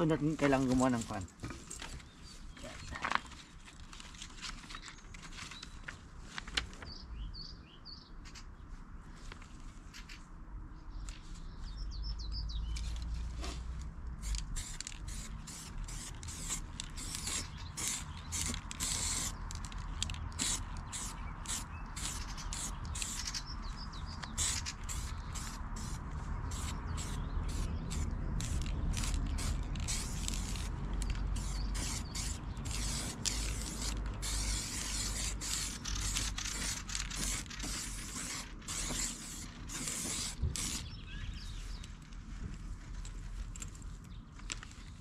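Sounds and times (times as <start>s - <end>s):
small birds chirping: 1.8s - 3.6s, 6.8s - 8.7s, 10.8s - 13.2s, 15.1s - 42.1s
short hissing strokes: 31.4s - 41.0s.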